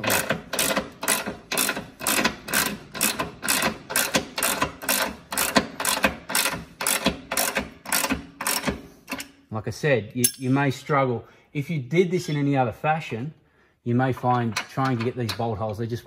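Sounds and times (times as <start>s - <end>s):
ratchet wrench clicking: 0.0s - 9.4s.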